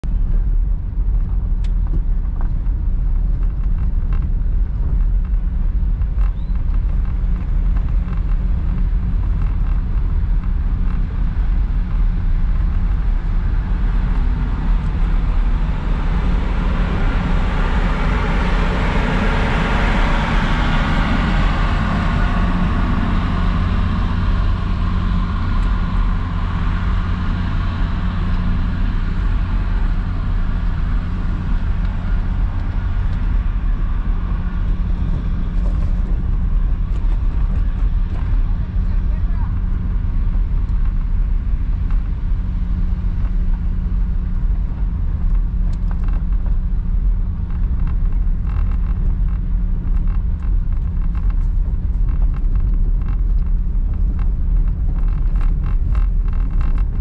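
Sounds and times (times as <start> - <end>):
low engine hum: 0.0 - 57.0
broad rushing noise: 8.4 - 42.7.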